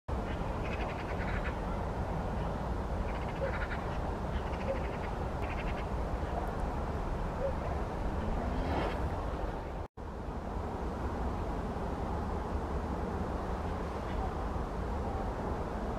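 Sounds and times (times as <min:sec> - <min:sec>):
steady low rumble: 0:00.1 - 0:15.9
magpies rattling chatter calls: 0:00.3 - 0:01.7, 0:03.1 - 0:06.5.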